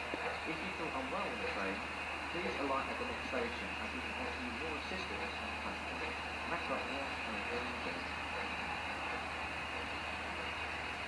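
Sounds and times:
steam hissing: 0.0s - 11.0s.

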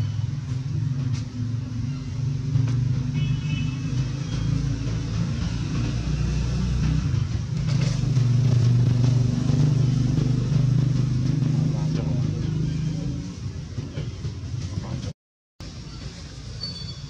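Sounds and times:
low engine rumble: 0.0s - 16.6s
faint high chirp: 15.9s - 17.0s.

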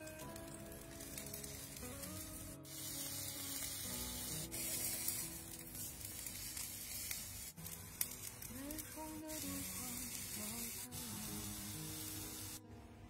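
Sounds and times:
chicken sizzling on a grill: 0.0s - 12.6s
background music: 0.0s - 13.0s.

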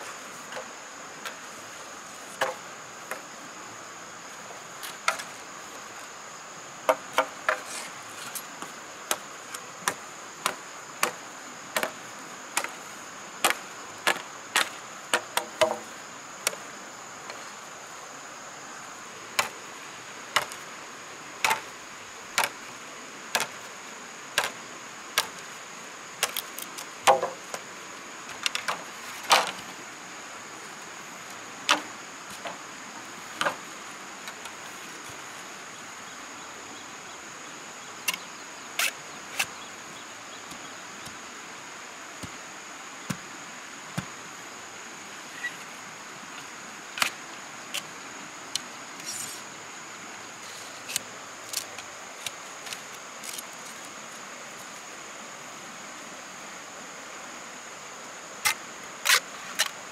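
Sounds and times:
insects buzzing: 0.0s - 59.9s
tool chopping wood: 13.4s - 15.8s, 27.0s - 27.4s.

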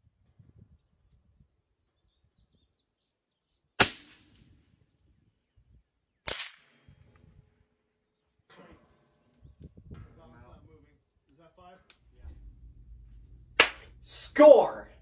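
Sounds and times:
suppressed rifle shot: 3.8s - 4.5s, 6.3s - 6.9s
quieter sharp report: 8.5s - 15.0s.

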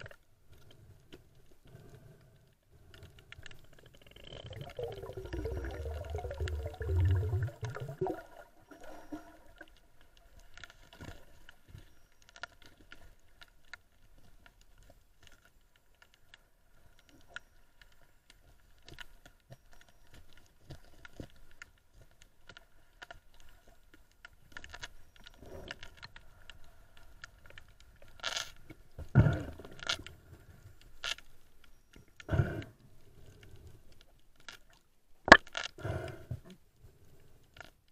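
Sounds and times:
faint underwater clicks and crackles: 0.0s - 37.9s
underwater knocks and rustles: 2.8s - 32.2s.

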